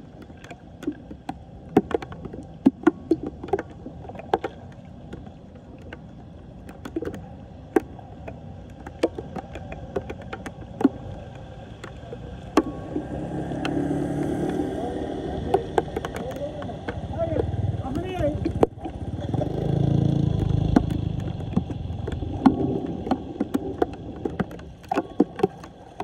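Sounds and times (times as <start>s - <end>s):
water and rain: 0.0s - 26.0s
motorcycle engine: 12.5s - 22.8s.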